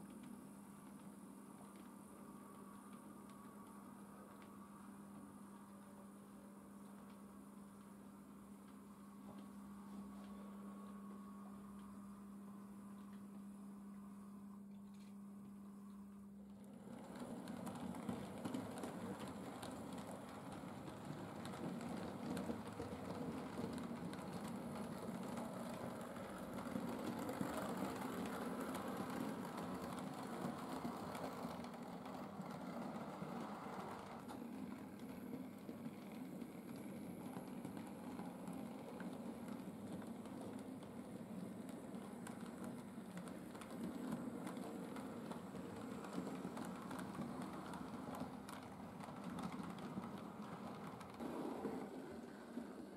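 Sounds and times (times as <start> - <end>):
electric locomotive motors humming: 15.4 - 52.9.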